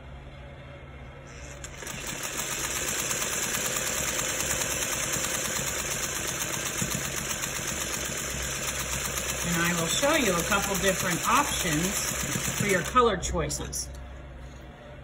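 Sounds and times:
sewing machine running: 1.3 - 13.2.

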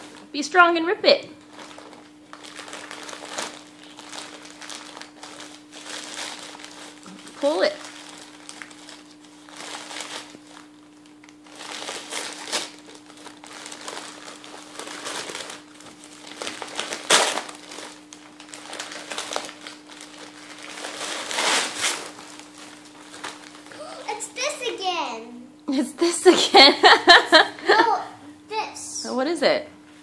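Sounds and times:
wrapping paper crumpled and torn: 1.4 - 24.2.

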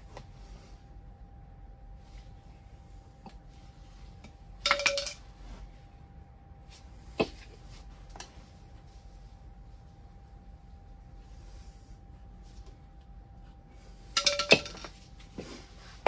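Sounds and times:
metal tools clinking on concrete: 4.6 - 5.2, 14.2 - 15.0.

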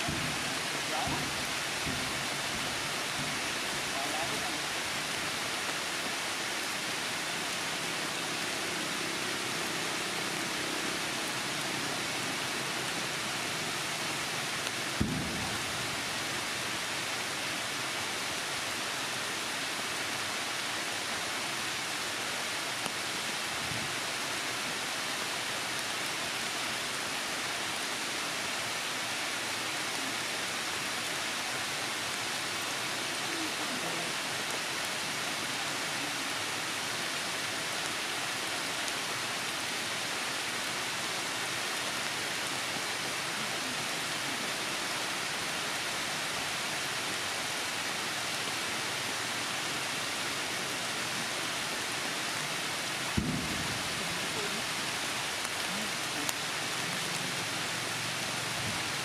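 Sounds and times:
heavy rain in forest: 0.0 - 59.0.

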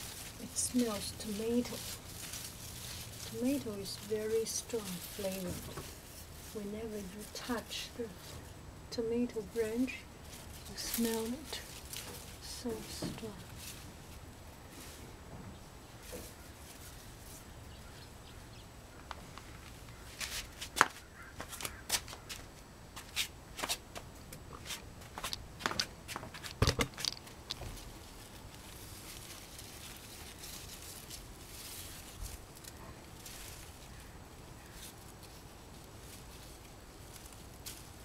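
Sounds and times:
plants rustling and crackling: 0.0 - 38.0
sharp snaps of stems: 19.0 - 27.6.

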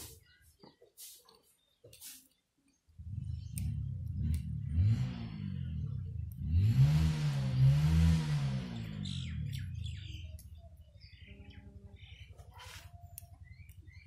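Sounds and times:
birds chirping: 0.0 - 4.6, 7.4 - 14.0
passing vehicle engine: 3.0 - 10.2.

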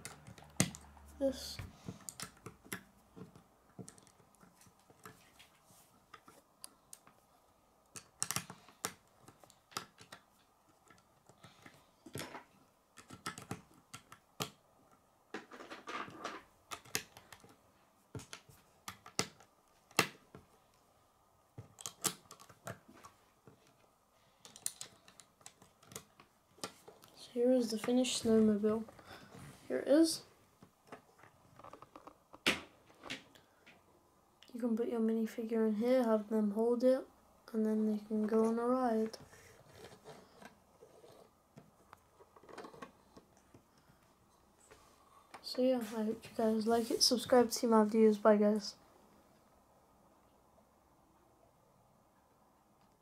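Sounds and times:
plastic bricks clicking: 24.4 - 27.1.

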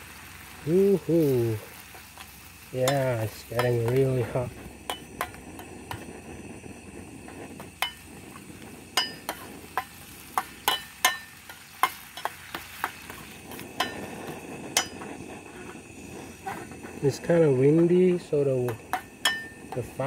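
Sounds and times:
paste sizzling in pan: 0.0 - 20.0
metal spoon scraping frying pan: 7.2 - 17.9.

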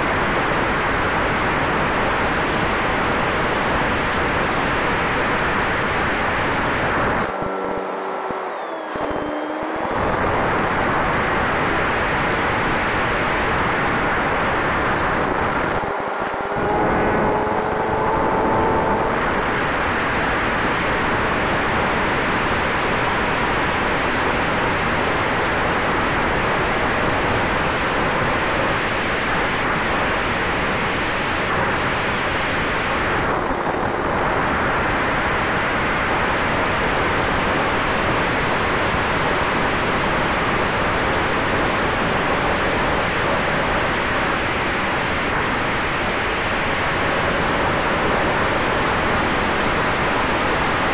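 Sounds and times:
wind rushing over camera: 0.0 - 50.9
electric motor and propeller tone: 6.8 - 11.7, 14.2 - 20.7
higher tone climbing: 15.0 - 19.7.

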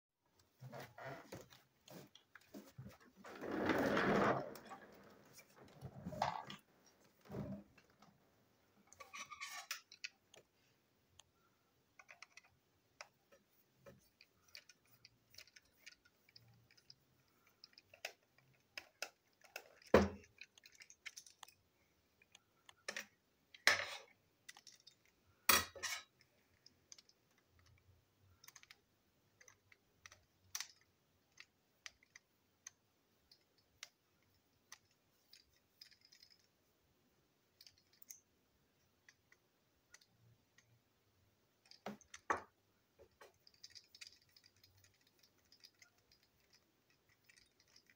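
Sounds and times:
plastic clicks and rattles: 11.9 - 36.5, 41.6 - 47.9.

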